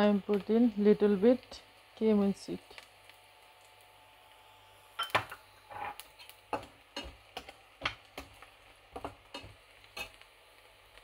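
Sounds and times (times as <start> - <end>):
spatula scraping frying pan: 5.7 - 10.2.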